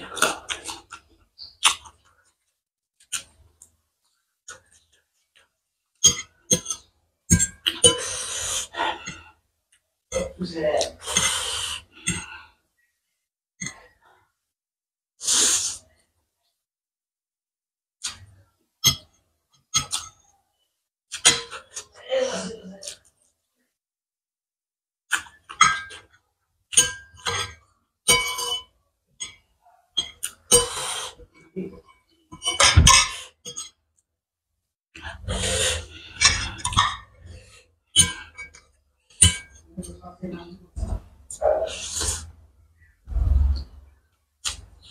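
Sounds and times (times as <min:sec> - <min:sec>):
slurping noodles: 0:15.2 - 0:15.9, 0:35.0 - 0:37.6, 0:41.4 - 0:42.3.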